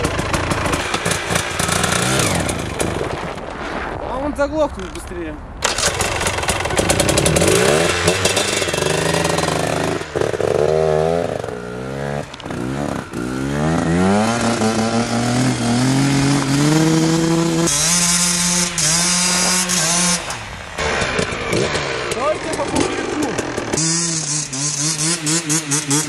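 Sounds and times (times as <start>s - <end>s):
dirt bike engine revving: 0.0s - 3.4s, 5.6s - 26.0s.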